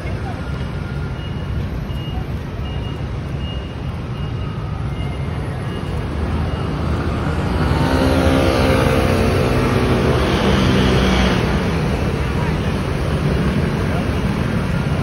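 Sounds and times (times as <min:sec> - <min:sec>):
city street traffic rumble: 0:00.0 - 0:15.0
vehicle engine approaching: 0:05.7 - 0:15.0.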